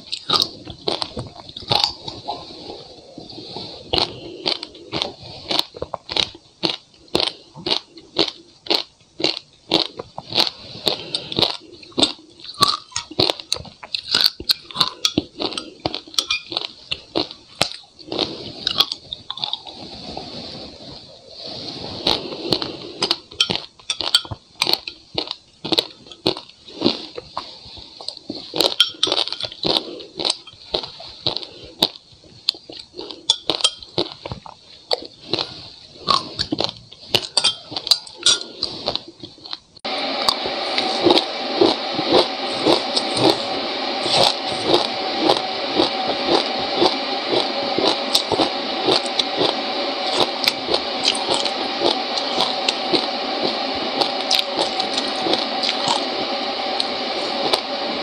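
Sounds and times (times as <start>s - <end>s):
squishing frozen seeds: 0.0s - 57.8s
crunching frozen fruit and ice: 3.4s - 19.7s.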